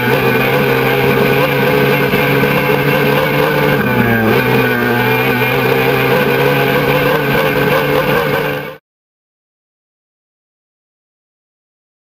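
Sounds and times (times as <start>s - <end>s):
outboard engine high revs: 0.0s - 8.8s.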